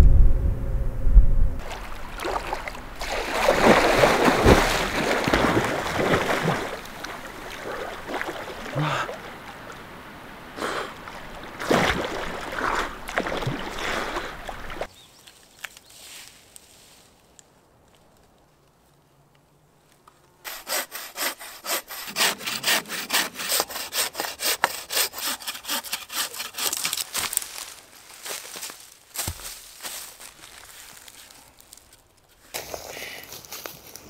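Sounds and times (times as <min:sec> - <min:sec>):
water splashing: 0:01.6 - 0:14.9.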